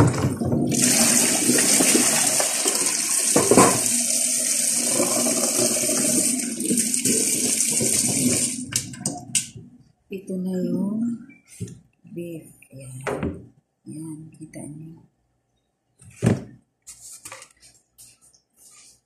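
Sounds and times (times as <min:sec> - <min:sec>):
tap water running into steel sink: 0:00.0 - 0:09.5.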